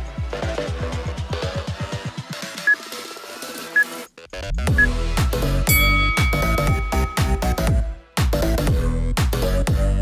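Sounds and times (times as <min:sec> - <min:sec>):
electronic workout music: 0:00.2 - 0:10.0
short high beeps: 0:05.7 - 0:07.7.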